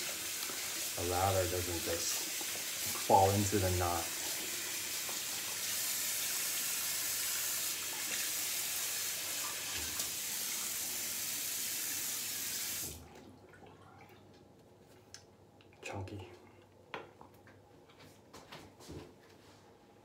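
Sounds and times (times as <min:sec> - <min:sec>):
shaving brush rinsed under water: 0:00.0 - 0:06.7
bathroom tap running: 0:00.0 - 0:13.2.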